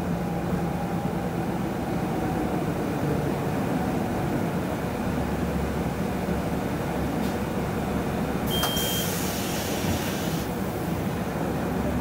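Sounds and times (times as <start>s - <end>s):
idling bus hum: 0.0s - 12.0s
short high beep: 8.5s - 9.2s
bus door click: 8.5s - 10.4s
bus door air hiss: 8.5s - 10.9s.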